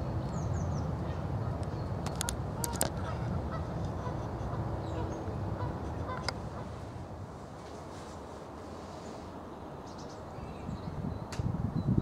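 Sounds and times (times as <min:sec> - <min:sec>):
low wind rumble on microphone: 0:00.0 - 0:12.0
distant waterfowl calling: 0:01.0 - 0:06.9.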